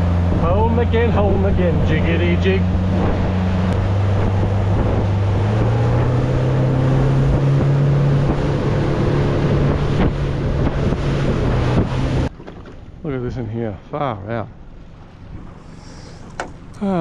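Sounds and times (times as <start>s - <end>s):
wind on microphone: 0.0s - 12.3s
water rushing: 0.0s - 13.6s
boat engine running: 0.0s - 17.0s.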